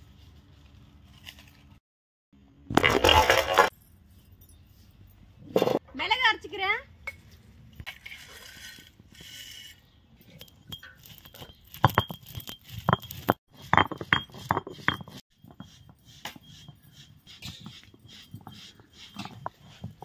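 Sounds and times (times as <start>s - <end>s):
kitchenware clinking and knocking: 5.4s - 5.8s.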